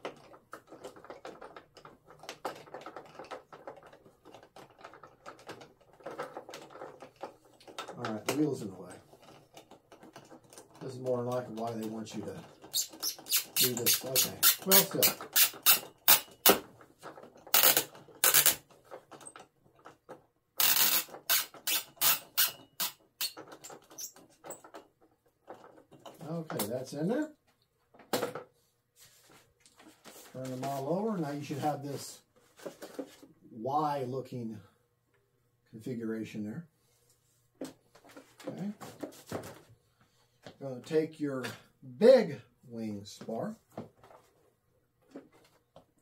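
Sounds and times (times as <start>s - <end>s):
screwdriver rasping scrape: 12.7s - 16.3s.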